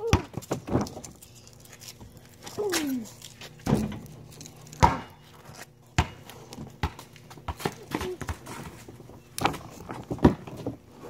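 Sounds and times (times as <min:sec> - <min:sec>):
basketball bouncing: 0:04.8 - 0:05.2, 0:06.0 - 0:08.5.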